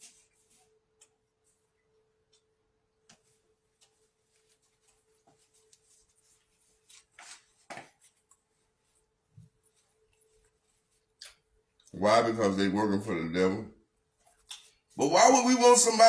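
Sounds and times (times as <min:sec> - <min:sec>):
faint steady hum: 0:00.0 - 0:16.0
hands handling at kitchen counter: 0:03.0 - 0:08.5.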